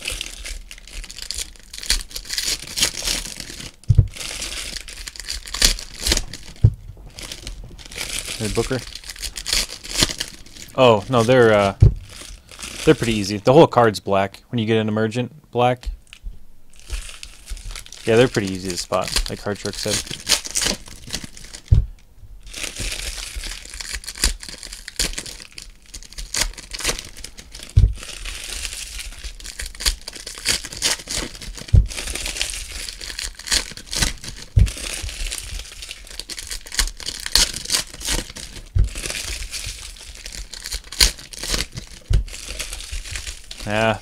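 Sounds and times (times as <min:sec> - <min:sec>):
foil wrappers crinkling and tearing: 0:00.0 - 0:13.8, 0:16.7 - 0:21.7, 0:22.4 - 0:44.0
dull thumps: 0:03.8 - 0:04.2, 0:05.8 - 0:10.7, 0:11.7 - 0:12.2, 0:21.6 - 0:22.4, 0:27.7 - 0:28.1, 0:31.7 - 0:32.1, 0:34.6 - 0:35.2, 0:38.7 - 0:39.2, 0:42.0 - 0:43.2.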